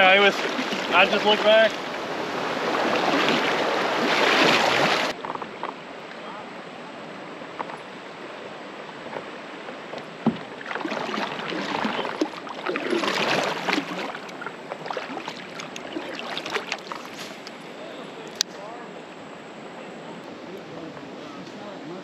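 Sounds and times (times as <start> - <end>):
paddle strokes splashing in water: 0.0 - 5.6, 8.4 - 17.6
light water drips: 10.3 - 17.6.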